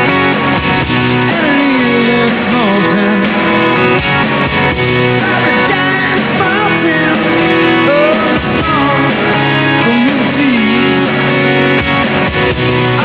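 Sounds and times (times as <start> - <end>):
guitar: 0.0 - 13.0
person singing: 1.2 - 4.0, 5.0 - 12.0.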